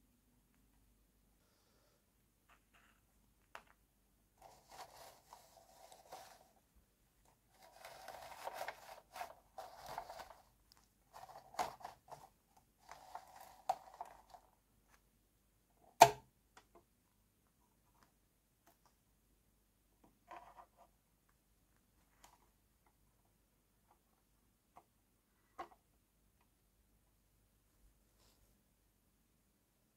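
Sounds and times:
loud plastic snap: 16.0s - 16.3s.

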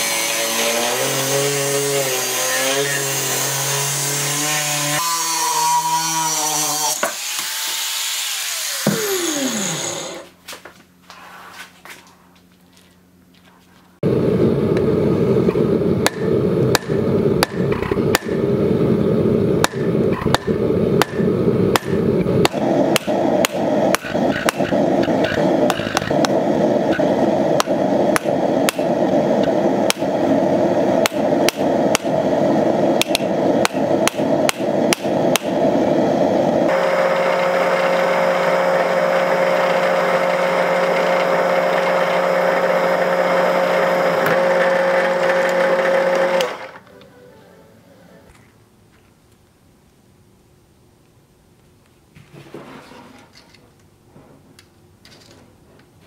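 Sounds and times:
drill motor whine: 0.0s - 10.3s, 14.0s - 46.8s
hammer blows on hot steel: 15.5s - 18.6s, 19.6s - 36.5s.

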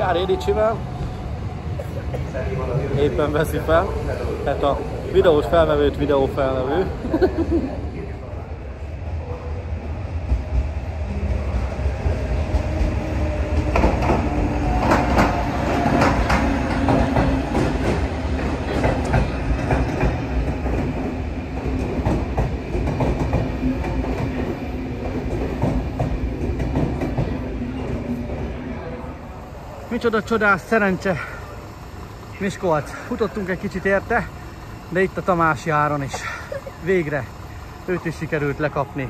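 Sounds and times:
locomotive steady hum: 0.0s - 39.0s
train low rumble: 0.0s - 39.0s
train wheels clattering on rails: 10.2s - 28.6s.

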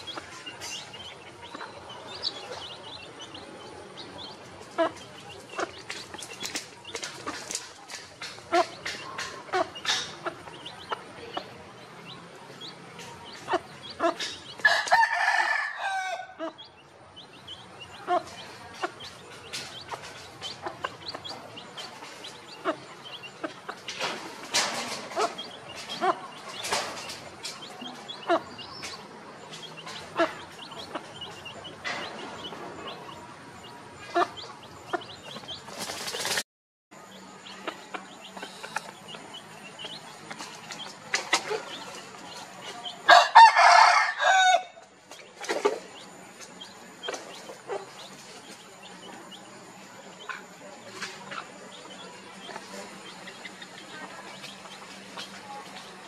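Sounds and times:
hen clucking: 0.0s - 15.1s, 16.3s - 36.3s, 37.4s - 44.0s, 44.6s - 56.0s
chicks peeping: 0.0s - 36.4s, 37.0s - 56.0s
rooster crowing: 14.6s - 16.4s, 43.1s - 44.8s.

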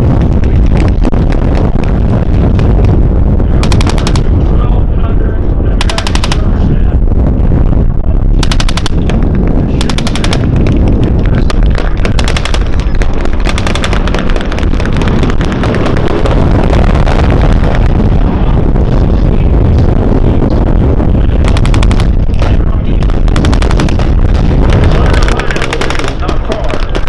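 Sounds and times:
continuous low rumble: 0.0s - 27.0s
machine gun bursts: 3.6s - 4.3s, 5.8s - 6.5s, 8.4s - 9.0s, 9.8s - 10.5s, 11.8s - 15.8s, 24.8s - 27.0s.

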